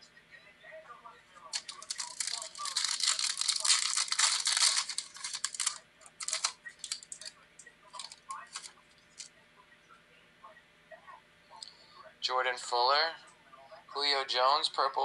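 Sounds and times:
cards being handled: 0:01.5 - 0:07.3, 0:08.0 - 0:09.3
foil wrapper crinkling: 0:01.5 - 0:07.3, 0:07.9 - 0:09.3.

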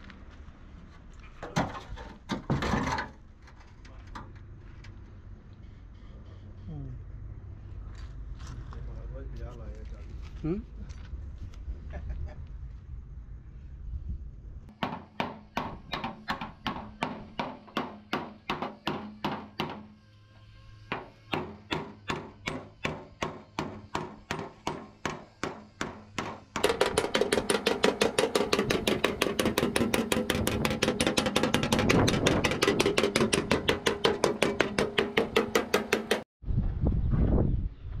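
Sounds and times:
hammer on sheet metal: 0:14.7 - 0:19.9, 0:20.9 - 0:36.3
fast loud hammering on panel: 0:14.8 - 0:19.9, 0:20.9 - 0:36.3.

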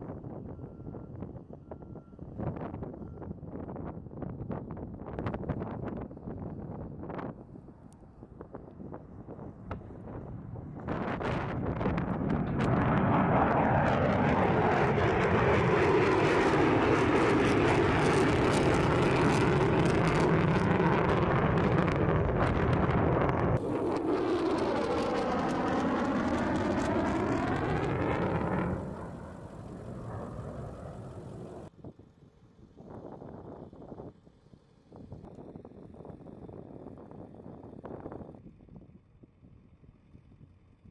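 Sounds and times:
jet aircraft passing overhead: 0:09.9 - 0:31.7.

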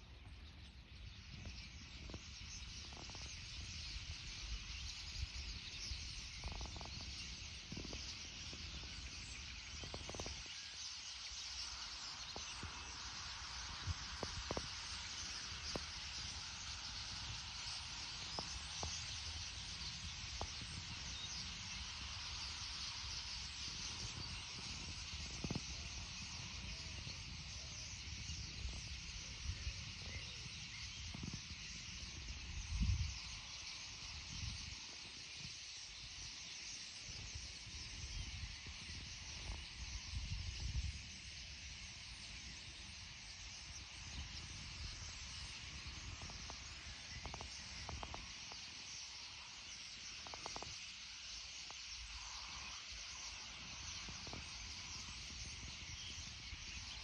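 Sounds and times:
starlings chattering: 0:00.9 - 0:57.0.

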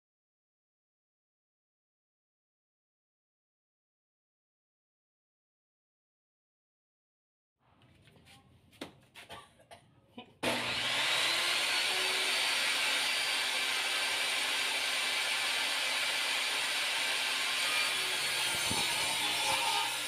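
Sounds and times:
table saw motor running: 0:10.4 - 0:20.0.

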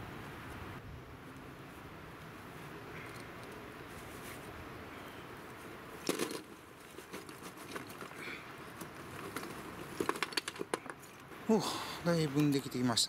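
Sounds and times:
loud rustle: 0:01.7 - 0:11.1.

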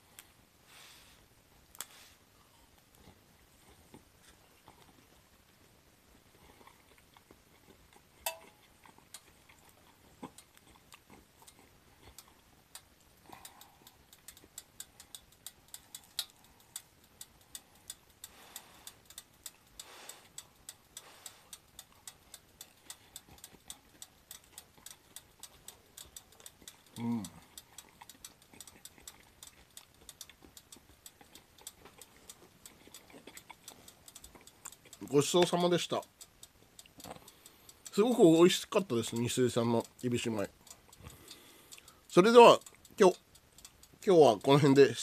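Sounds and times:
close-up chewing: 0:01.8 - 0:45.0.

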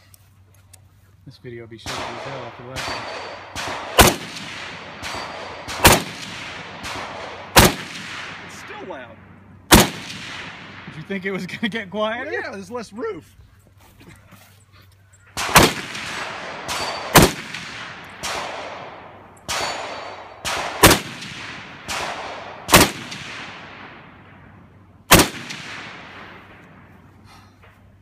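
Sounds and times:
rifle shots: 0:01.8 - 0:11.4, 0:15.3 - 0:26.9
rolling echo of gunshots: 0:01.8 - 0:11.4, 0:15.4 - 0:26.9.

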